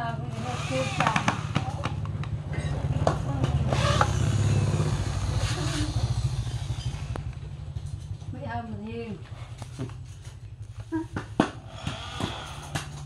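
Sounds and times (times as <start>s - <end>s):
low pulsing rumble: 0.0s - 13.0s
electric drill boring into wood: 0.3s - 2.0s, 3.6s - 7.2s.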